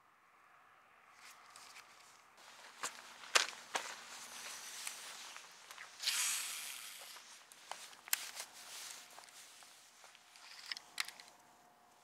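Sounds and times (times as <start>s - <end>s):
faint steady whine: 0.0s - 12.0s
fishing reel clicks: 6.0s - 7.2s.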